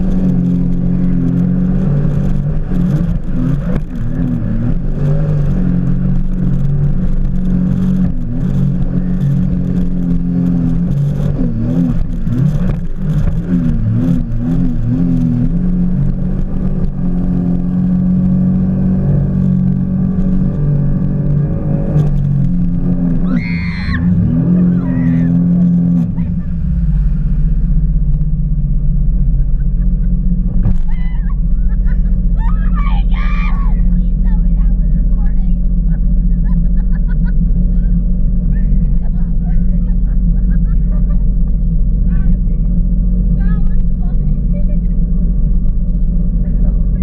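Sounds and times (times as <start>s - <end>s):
jet ski engine running: 0.0s - 47.0s.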